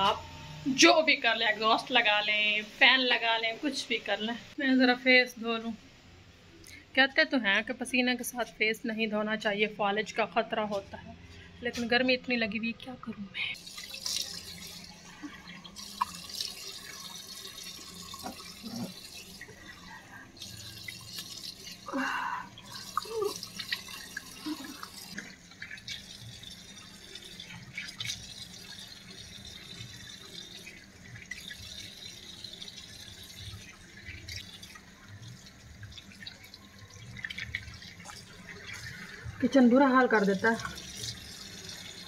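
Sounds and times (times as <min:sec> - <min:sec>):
water running from tap into basin: 0:13.6 - 0:42.0
water splashing: 0:13.6 - 0:42.0.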